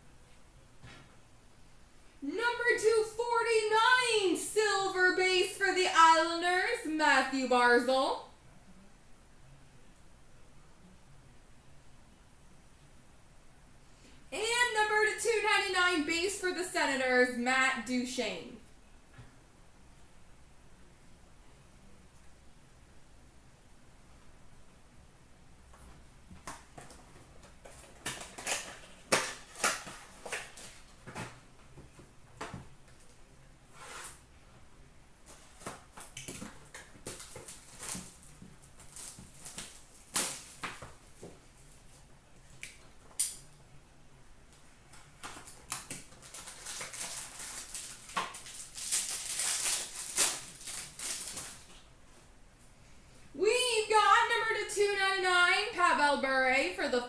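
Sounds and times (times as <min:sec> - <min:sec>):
cardboard crinkling and clicking: 0:26.4 - 0:31.9
cards rustling: 0:45.0 - 0:51.8.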